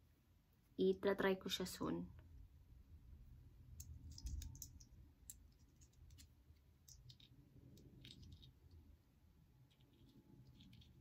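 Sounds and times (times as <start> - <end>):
small items clicking: 3.7 - 8.9, 9.6 - 11.0.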